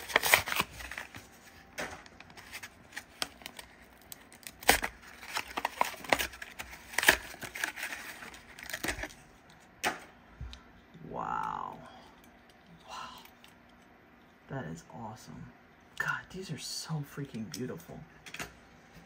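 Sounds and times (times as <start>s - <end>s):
cardboard and plastic tearing: 0.0s - 9.2s.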